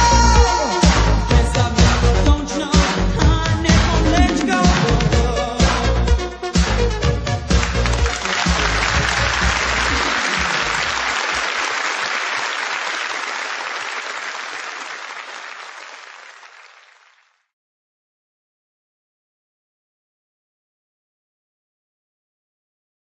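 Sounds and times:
dance track beat: 0.0s - 11.4s
crowd applause: 7.5s - 17.4s.

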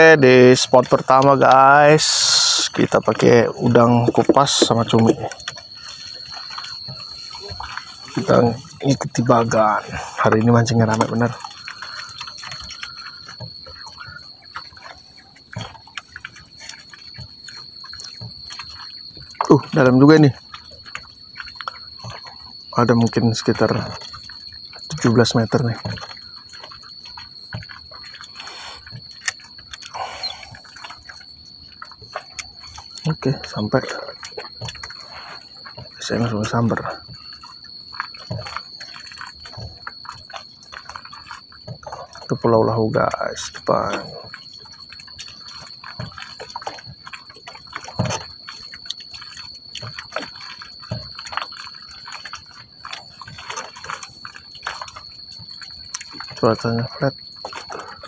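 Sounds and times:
water lapping against boat hull: 0.0s - 58.0s.

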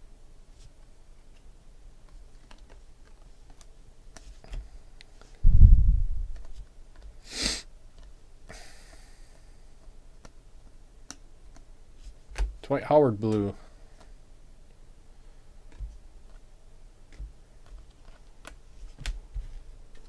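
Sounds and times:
heavy low thump: 5.4s - 6.4s
trading cards clicking and sliding: 6.3s - 7.2s
short sharp hiss: 7.2s - 7.7s.

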